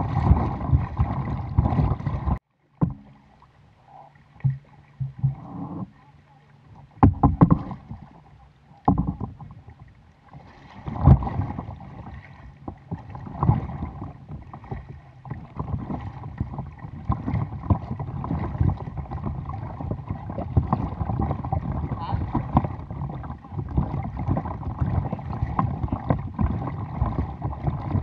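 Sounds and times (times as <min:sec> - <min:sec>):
paddle strokes splashing: 0:00.0 - 0:28.0
water lapping against hull: 0:00.0 - 0:28.0.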